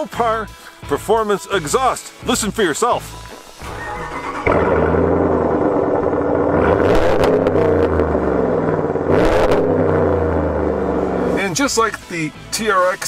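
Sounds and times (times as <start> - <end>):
engine idling and revving: 3.5 - 12.6.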